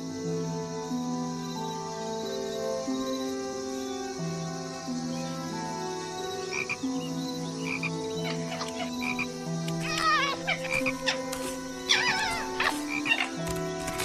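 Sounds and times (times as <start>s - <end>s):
background film music: 0.0s - 14.0s
frogs croaking: 0.0s - 14.0s
rising and falling calls: 7.7s - 14.0s.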